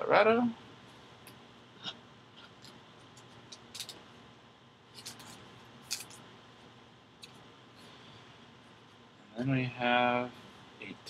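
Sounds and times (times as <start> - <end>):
cards clicking and rustling: 2.6 - 4.0, 5.0 - 6.2.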